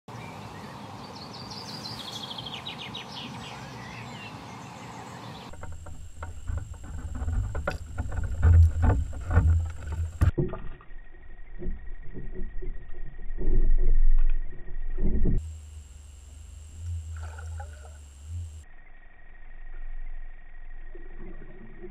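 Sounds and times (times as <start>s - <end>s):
songbird trill: 0.1s - 7.3s
water knocking against camera: 5.5s - 10.7s.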